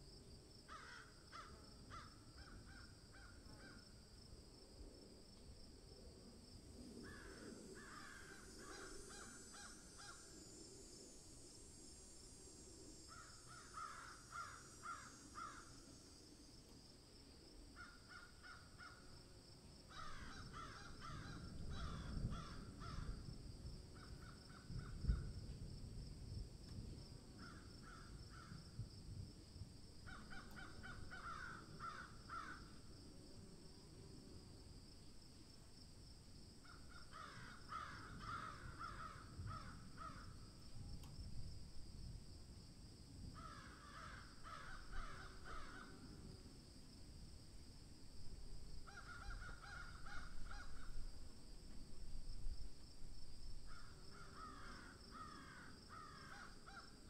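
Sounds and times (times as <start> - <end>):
faint bird calls: 7.0 - 10.4, 30.1 - 32.8, 48.8 - 51.0.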